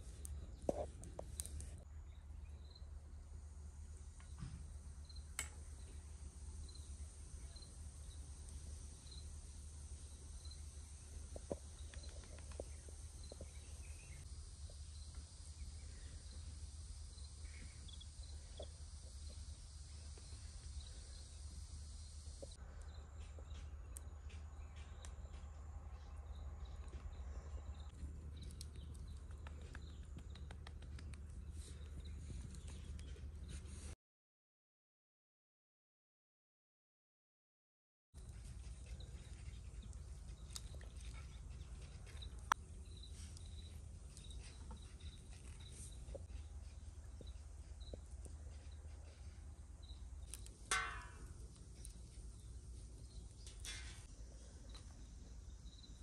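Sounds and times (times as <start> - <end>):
steady low hum: 0.0 - 33.7, 38.2 - 56.0
high insect-like hiss: 3.5 - 22.6
bird chirping: 17.2 - 18.7.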